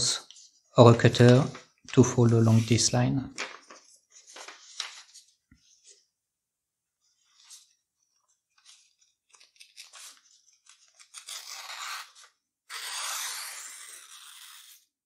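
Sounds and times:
paper rustles and clicks: 3.3s - 5.3s
paper cutter slicing paper: 11.0s - 14.9s.

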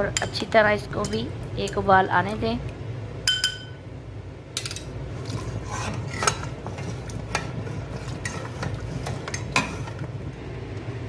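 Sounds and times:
spoon scraping steel pot: 5.2s - 10.1s.

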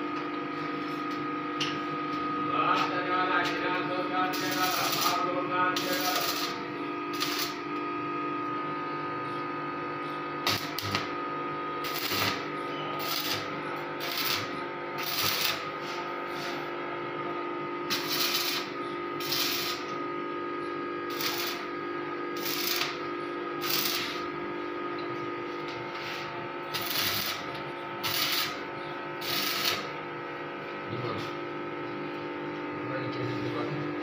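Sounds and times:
steady hum: 0.0s - 34.0s
welding arc crackling and sizzling: 4.2s - 7.7s, 10.4s - 11.2s, 11.8s - 16.7s, 17.8s - 20.0s, 21.1s - 24.4s, 26.2s - 28.6s, 29.2s - 30.0s.

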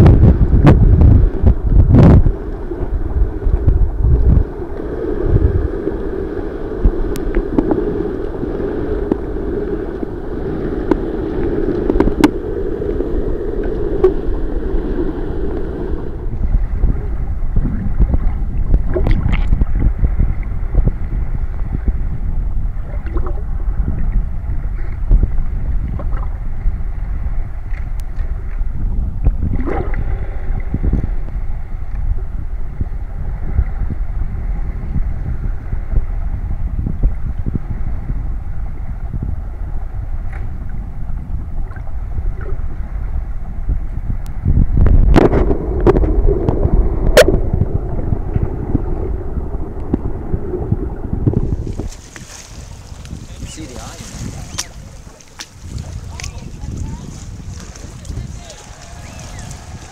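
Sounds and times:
muffled underwater rumble: 0.0s - 59.9s
bubbles: 6.6s - 21.0s, 22.7s - 24.2s, 29.2s - 31.2s, 44.6s - 52.1s
steady hum: 41.4s - 52.0s.

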